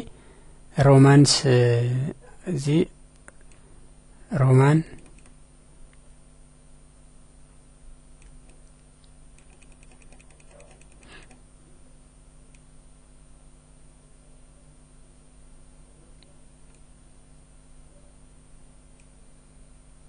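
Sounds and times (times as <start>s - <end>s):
steady low hum: 0.0s - 20.0s
computer mouse scroll ticks: 4.9s - 5.4s, 8.2s - 8.7s, 9.4s - 11.4s.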